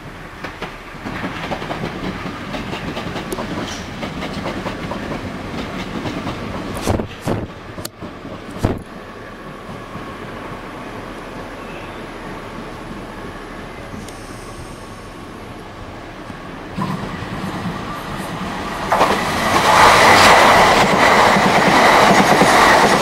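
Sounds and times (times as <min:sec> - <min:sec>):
train rumble: 0:00.0 - 0:23.0
train wheels clattering: 0:00.4 - 0:10.3, 0:16.3 - 0:23.0.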